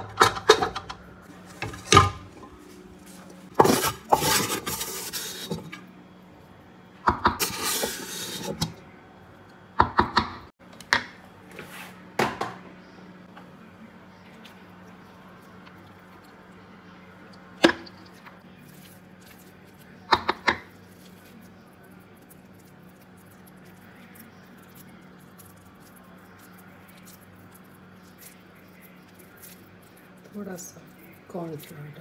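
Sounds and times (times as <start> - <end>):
spatula scraping metal pan: 3.6 - 5.8, 7.4 - 8.7.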